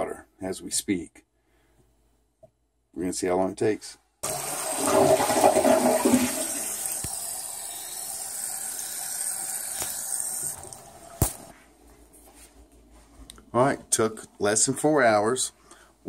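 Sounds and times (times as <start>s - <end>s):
water rushing through pipes: 4.2s - 11.4s.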